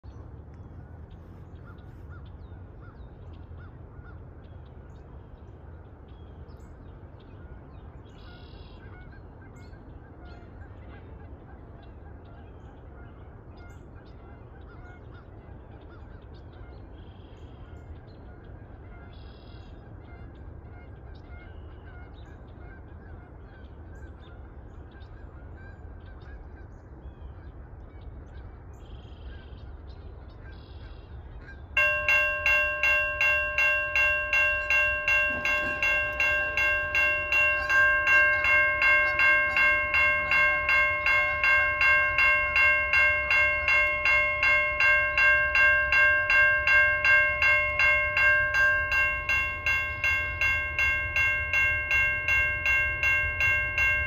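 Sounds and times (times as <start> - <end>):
geese honking: 30.3 - 54.0.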